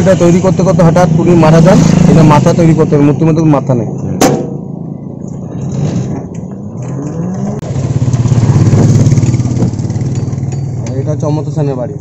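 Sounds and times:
vehicle engine revving up: 0.0s - 3.0s, 5.5s - 10.6s.

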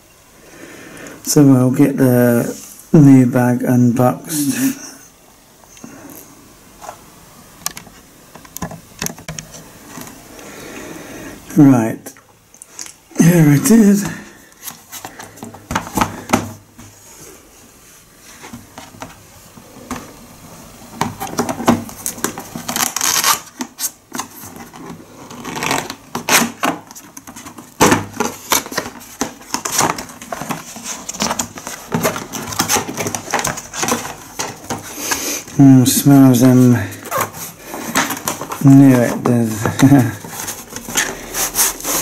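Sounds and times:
cardboard scraping and rustling: 18.2s - 42.0s.

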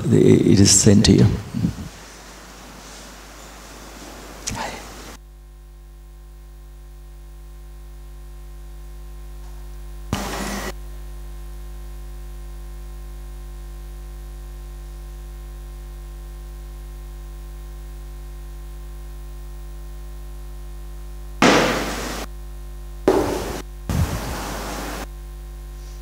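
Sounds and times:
low room hum: 0.0s - 5.2s
knocks: 21.4s - 22.3s, 23.1s - 23.6s.

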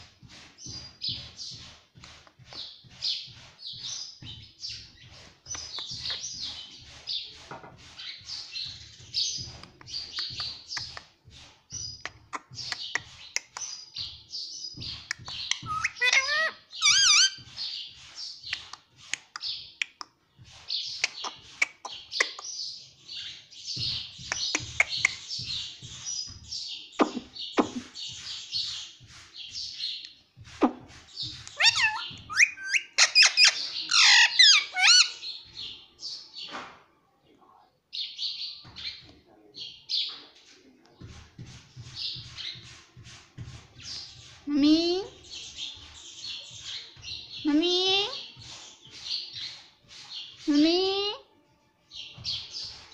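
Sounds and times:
parakeet chattering and chirping: 14.8s - 17.6s, 20.9s - 22.6s, 23.2s - 26.0s, 31.2s - 35.2s
parakeet squawking whistles: 15.6s - 17.4s, 31.6s - 35.1s.

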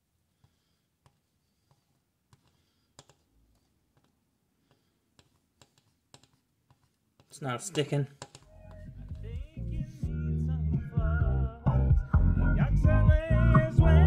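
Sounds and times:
soldering iron ticks and taps: 2.3s - 3.2s, 4.0s - 9.2s.

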